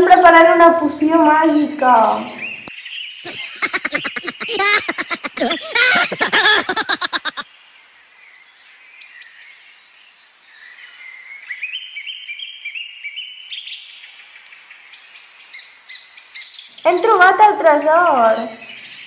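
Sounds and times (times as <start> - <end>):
birds chirping: 3.3 - 7.4
loud rapidly pulsing voice: 3.3 - 7.4.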